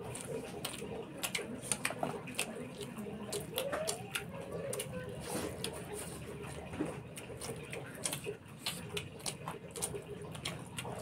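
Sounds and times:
mouth smacks and chewing clicks: 0:00.0 - 0:11.0.

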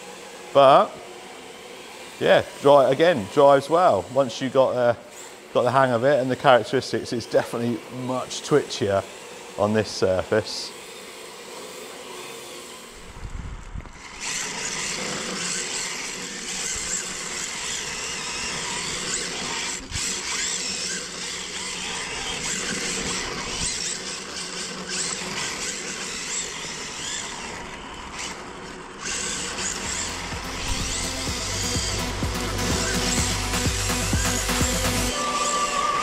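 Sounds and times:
electric motor whining: 0:00.0 - 0:36.0.

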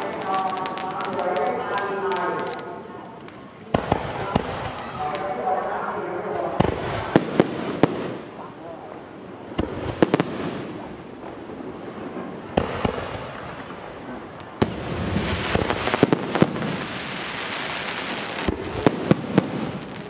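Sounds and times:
firework bangs: 0:00.0 - 0:20.0
firework crackling: 0:00.0 - 0:20.0.

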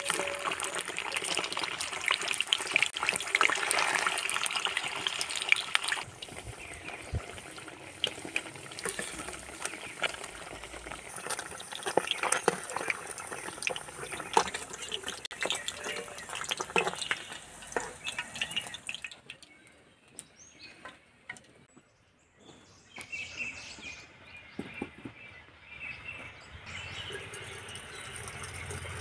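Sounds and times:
water pouring into a metal pot: 0:00.0 - 0:19.6, 0:26.9 - 0:29.0
cheese frying in hot oil: 0:00.0 - 0:19.7, 0:26.9 - 0:29.0.

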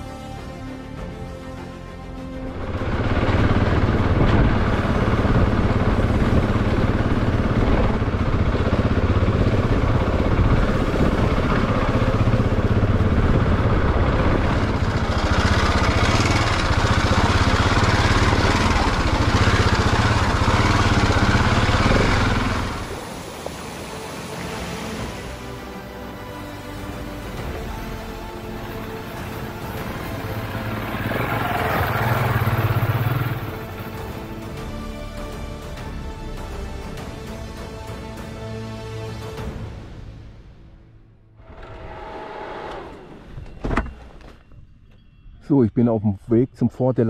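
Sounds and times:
motorcycle engine running: 0:02.6 - 0:23.1, 0:27.0 - 0:34.8.

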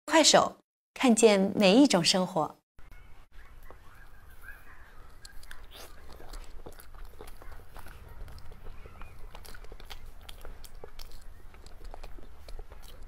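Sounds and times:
person chewing cake: 0:03.4 - 0:13.0
mouth clicks and smacks: 0:03.6 - 0:13.0.

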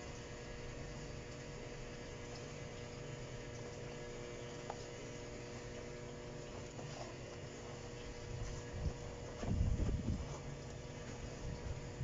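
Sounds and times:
steady hum: 0:00.0 - 0:12.0
hand stirring gritty soil in bucket: 0:06.4 - 0:11.6.

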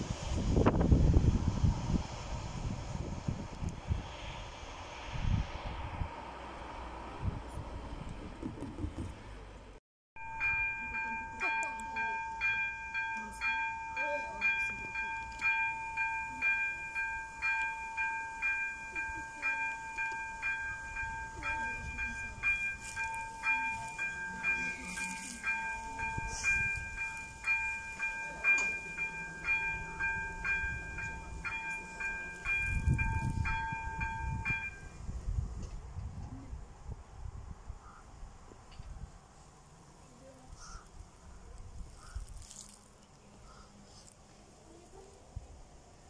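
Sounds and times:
low rumble: 0:00.0 - 0:18.7
level crossing warning signal: 0:10.2 - 0:34.9.

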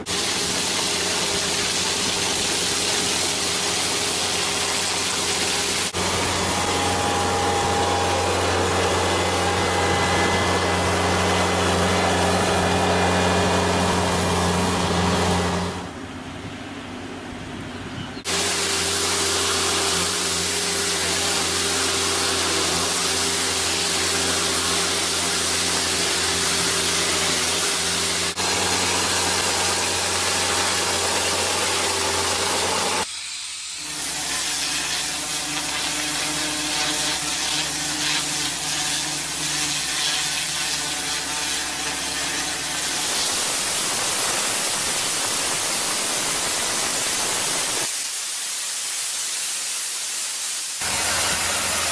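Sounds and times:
brush scrubbing paving stones: 0:00.0 - 0:15.8, 0:18.3 - 0:33.1, 0:33.9 - 0:48.0, 0:50.8 - 0:51.9
high-pressure water jet spraying: 0:00.0 - 0:15.9, 0:18.3 - 0:51.9
tractor engine hum: 0:00.0 - 0:33.0, 0:50.8 - 0:51.9.

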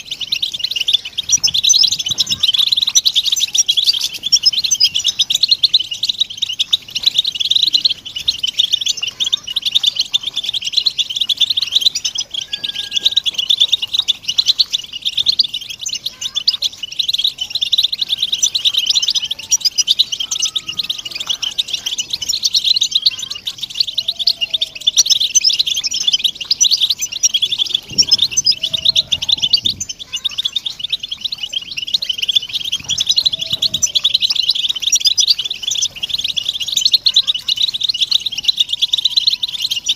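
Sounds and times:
flock of finches twittering: 0:00.0 - 0:39.9.

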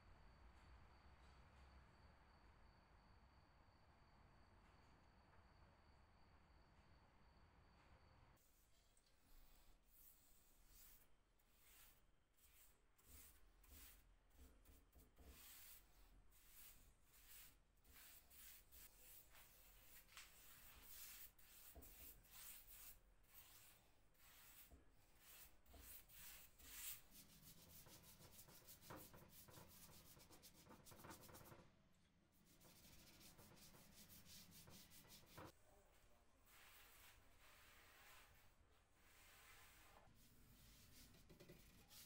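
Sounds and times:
paintbrush swishing on wood: 0:09.3 - 0:31.6, 0:32.4 - 0:35.5, 0:36.5 - 0:42.0.

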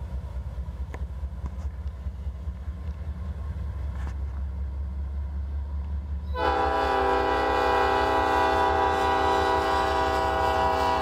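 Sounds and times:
freight train locomotive rumble: 0:00.0 - 0:11.0
locomotive air horn chord: 0:06.3 - 0:11.0.

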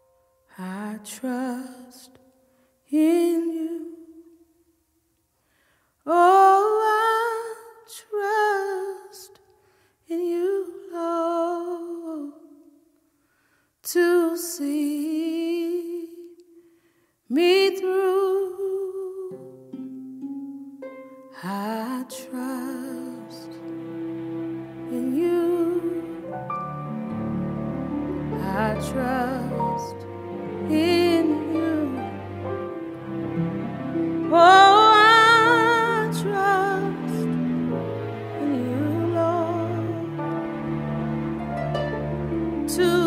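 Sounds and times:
person singing with vibrato: 0:21.3 - 0:23.9, 0:26.9 - 0:43.0
sustained instrumental chords: 0:23.0 - 0:43.0.

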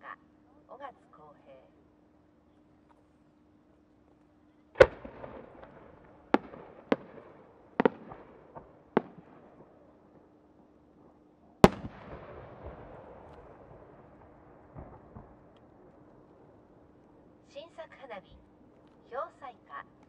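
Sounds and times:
firework loud bang: 0:04.8 - 0:09.6, 0:11.6 - 0:15.5
firework burst rumbling and echoing: 0:04.8 - 0:10.3, 0:11.6 - 0:16.8
firework sharp cracks: 0:04.8 - 0:10.3, 0:11.6 - 0:16.7.

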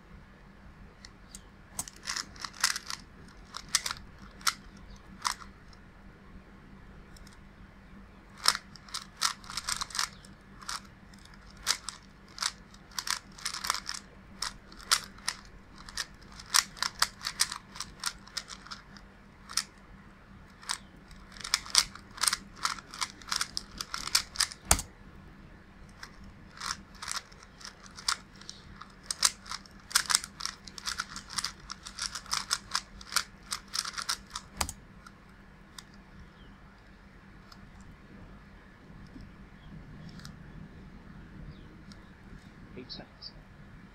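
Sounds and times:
puzzle cube plastic clicking: 0:01.0 - 0:05.8, 0:07.1 - 0:07.4, 0:08.3 - 0:19.8, 0:20.4 - 0:24.9, 0:25.8 - 0:38.0, 0:40.0 - 0:40.4.

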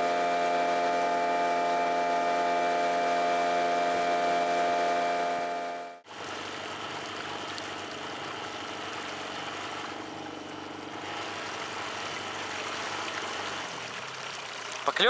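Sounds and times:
outboard motor running: 0:00.0 - 0:15.0
water against hull: 0:06.0 - 0:15.0.

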